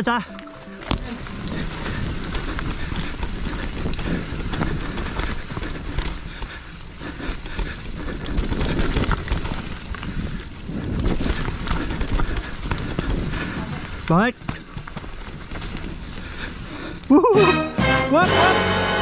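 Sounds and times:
wind buffeting microphone: 0.4 - 17.1
bike clicks and rattles: 0.4 - 17.3
tyres rumbling over dirt: 0.4 - 19.0.

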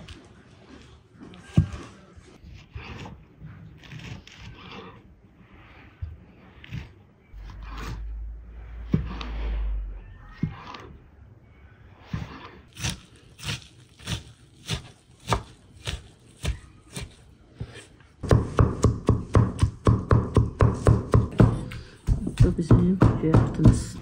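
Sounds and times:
cleaver chopping meat: 12.1 - 24.0
knife chopping on wooden board: 12.1 - 24.0.

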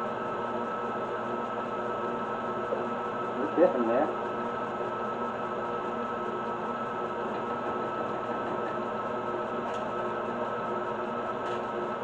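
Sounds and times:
constant whine: 2.5 - 9.9.

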